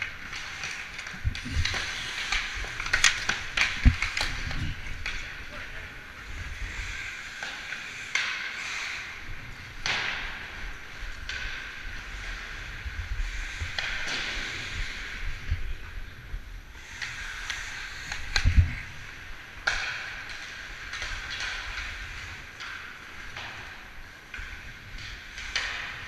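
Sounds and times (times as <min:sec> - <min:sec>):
skate blades scraping ice: 0:00.0 - 0:15.4, 0:16.8 - 0:26.0
hockey stick clacking on puck: 0:06.6 - 0:09.2, 0:19.6 - 0:26.0.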